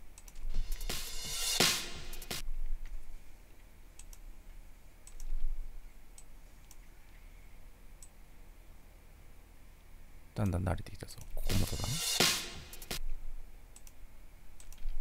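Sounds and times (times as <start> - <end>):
computer mouse clicks: 0.1 - 0.5, 4.0 - 4.3, 5.0 - 5.5, 13.8 - 14.0, 14.6 - 15.0.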